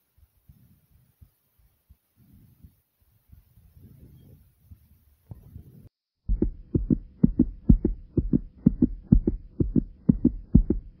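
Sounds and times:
fast heartbeat thumps: 6.2 - 11.0.

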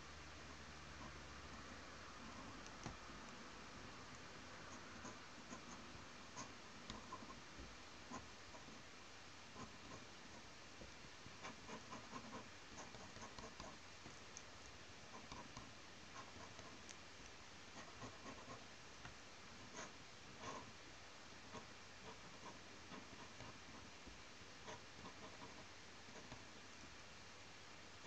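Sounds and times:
low steady hiss: 0.0 - 28.0
pen nib scratching paper: 0.9 - 8.8, 9.5 - 10.5, 11.3 - 17.0, 17.7 - 18.7, 19.5 - 20.7, 21.4 - 23.9, 24.6 - 26.5.

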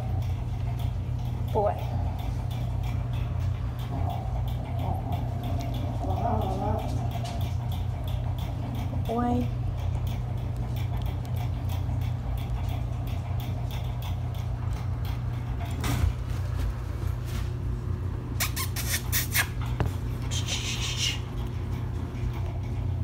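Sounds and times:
puppies squeaking: 18.4 - 19.8.

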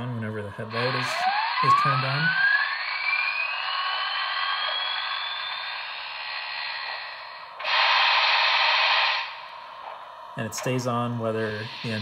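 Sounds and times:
faint high whine: 0.0 - 12.0
steam hiss: 11.4 - 12.0.

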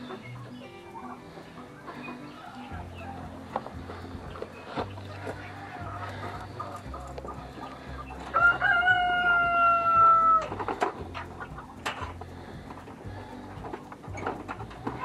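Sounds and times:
light metallic clinks: 0.0 - 15.0
rooster crowing: 2.0 - 3.5, 5.1 - 6.7, 8.2 - 10.6.

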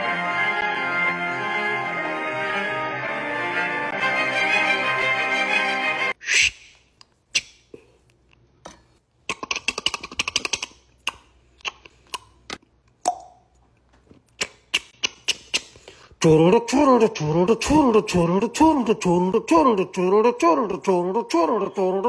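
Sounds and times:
music with singing: 16.2 - 22.0.

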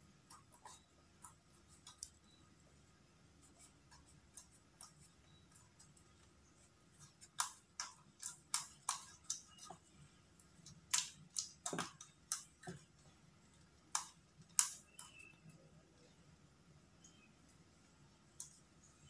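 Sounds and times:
hamster scratching and clicking: 0.1 - 2.4, 3.4 - 13.2, 13.8 - 15.4.

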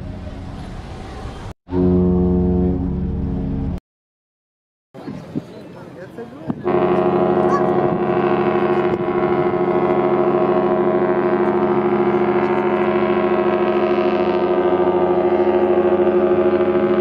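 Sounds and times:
ship's horn long blast: 1.7 - 3.8, 6.6 - 17.0.

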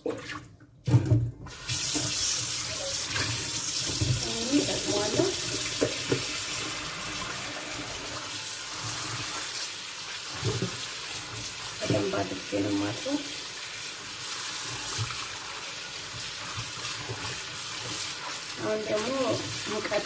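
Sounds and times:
lettuce rinsed under water: 0.0 - 20.0.

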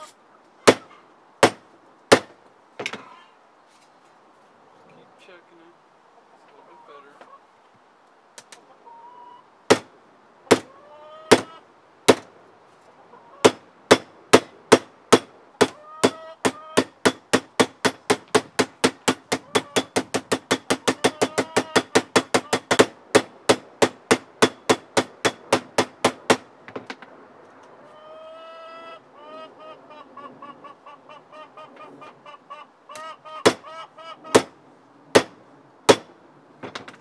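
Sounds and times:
sledgehammer striking saw blade: 35.2 - 36.1.

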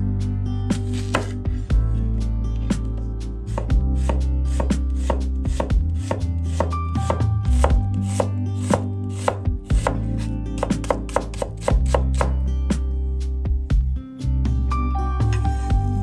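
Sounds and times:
background music: 0.0 - 16.0
knife chopping on cutting board: 1.0 - 1.4, 3.5 - 12.4.

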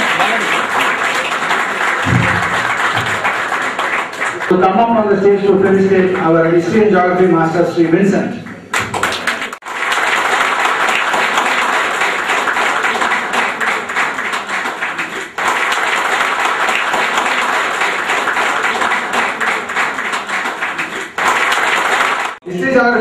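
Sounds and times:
audience clapping: 0.0 - 4.6, 7.9 - 22.5.

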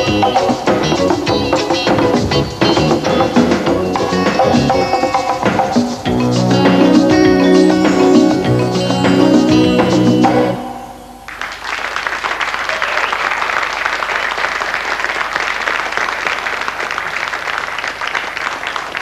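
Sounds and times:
band chord ringing: 0.0 - 11.3
studio audience applause: 11.3 - 19.0.

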